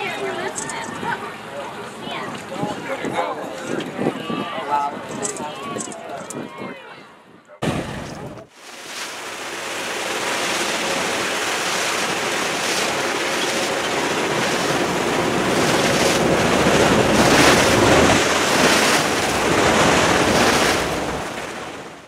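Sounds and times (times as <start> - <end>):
wind buffeting microphone: 2.1 - 6.8, 10.1 - 22.0
sea water rushing: 7.6 - 22.0.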